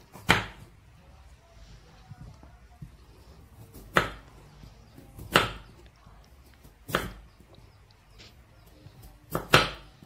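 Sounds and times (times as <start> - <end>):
knife chopping on wooden board: 0.1 - 0.7, 3.7 - 4.3, 5.2 - 5.8, 6.8 - 7.2, 9.3 - 10.0.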